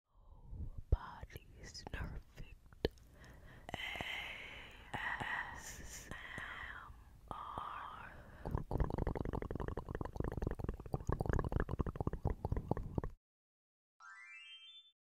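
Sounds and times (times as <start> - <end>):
rising chime sound effect: 14.0 - 15.0.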